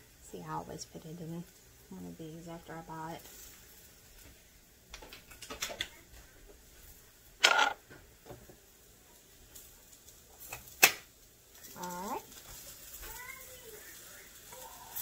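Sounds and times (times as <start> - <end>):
jars clicking when set down: 7.4 - 7.8.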